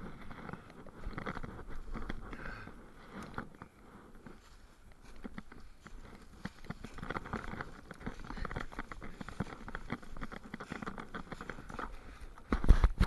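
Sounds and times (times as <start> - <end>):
dry leaves crunching and rustling: 4.2 - 12.5.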